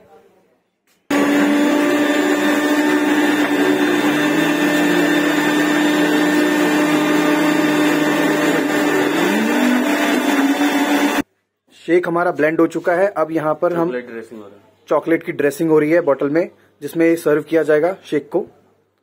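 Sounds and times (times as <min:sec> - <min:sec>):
blender motor running: 0:01.1 - 0:11.2.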